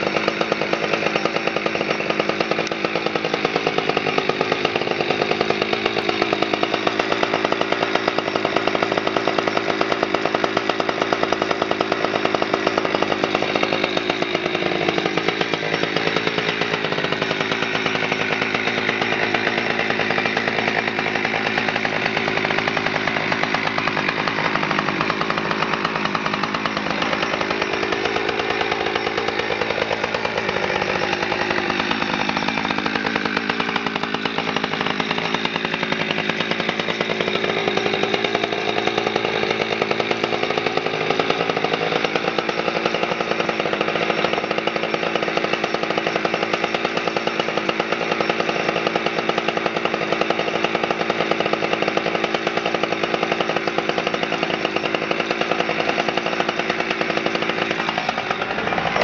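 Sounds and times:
chainsaw engine idling: 0.0 - 59.0.

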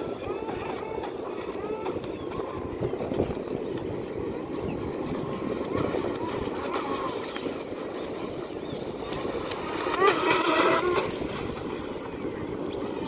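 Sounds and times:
rc speedboat rushing noise: 0.0 - 13.0.

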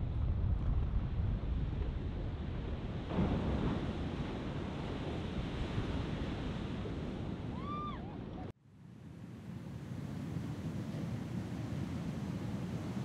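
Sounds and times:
wind buffeting microphone: 0.0 - 8.5
heavy ocean surf: 1.6 - 13.0.

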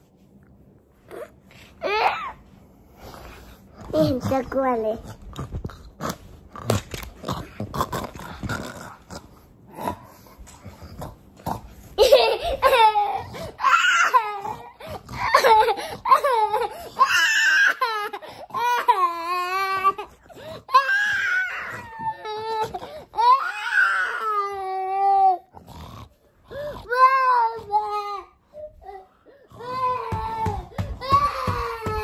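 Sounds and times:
young child crying: 26.9 - 32.0.

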